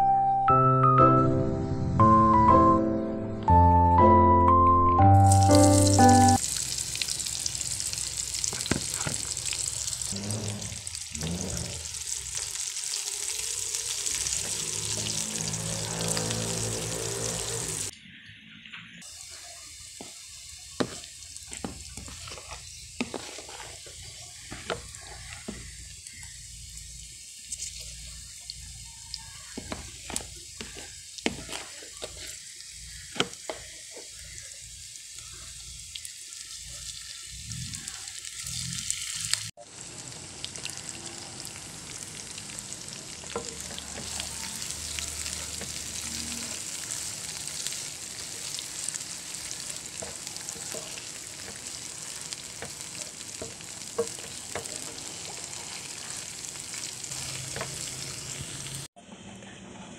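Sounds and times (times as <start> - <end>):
onions sizzling in hot oil: 5.2 - 17.9, 19.0 - 59.0
spatula stirring chili paste: 19.9 - 26.6, 29.4 - 34.4, 46.6 - 57.9.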